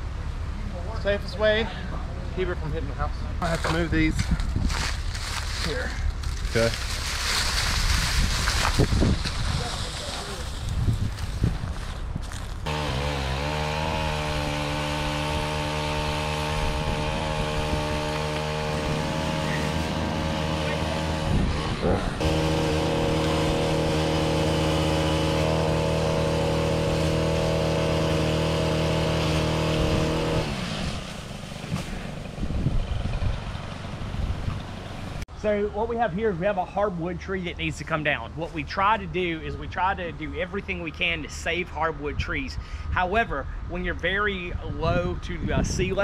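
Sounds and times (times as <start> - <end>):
pole saw cutting tree: 12.6 - 32.4.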